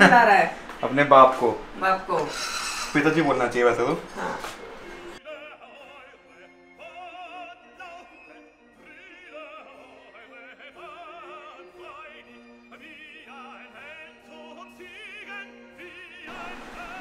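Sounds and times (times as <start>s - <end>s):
operatic singing in a high voice: 5.2s - 17.0s.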